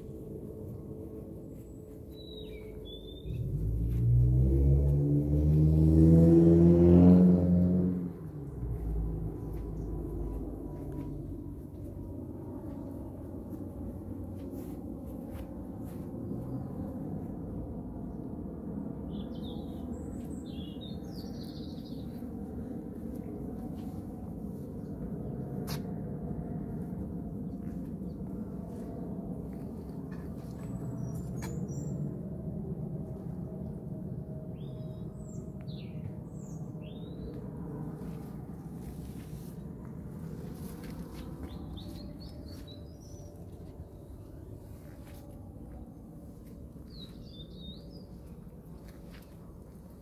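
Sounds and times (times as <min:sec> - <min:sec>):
loud low drone: 0:00.0 - 0:50.0
low rumble: 0:00.0 - 0:50.0
bird chirps: 0:01.6 - 0:04.0.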